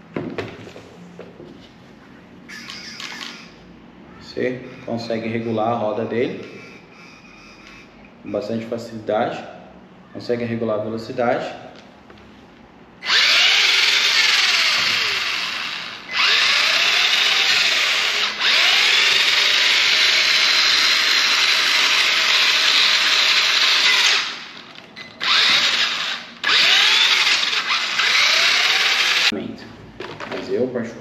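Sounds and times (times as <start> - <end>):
toy truck electric motor whining: 13.0 - 24.6, 25.2 - 29.3.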